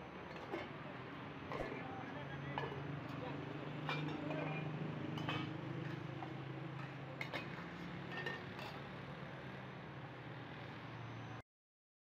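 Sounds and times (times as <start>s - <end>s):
metal lids clinking on pots: 0.3s - 0.8s, 1.5s - 1.8s, 2.6s - 8.8s.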